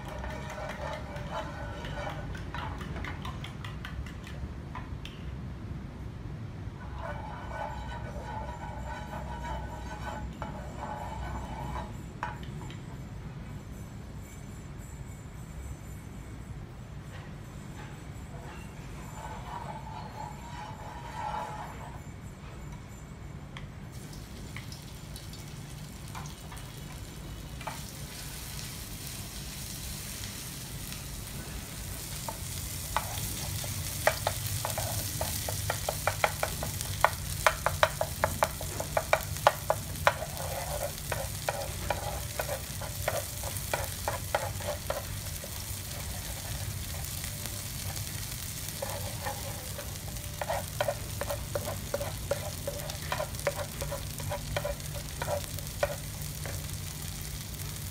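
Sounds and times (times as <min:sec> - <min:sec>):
wooden spoon scraping a pan: 0:00.0 - 0:03.1, 0:06.8 - 0:12.0, 0:19.0 - 0:22.0, 0:31.4 - 0:56.8
paste sizzling in oil: 0:24.0 - 0:57.9.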